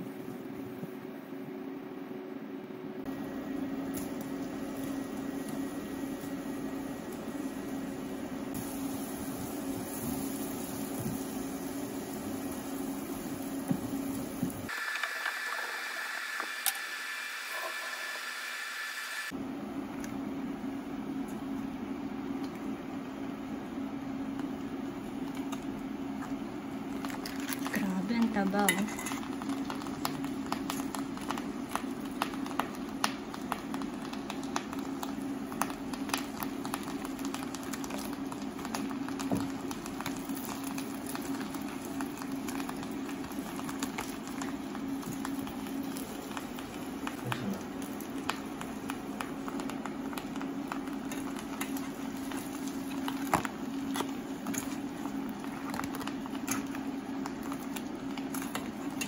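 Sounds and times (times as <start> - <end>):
sauce bubbling in frying pan: 3.2 - 19.4, 29.2 - 59.0.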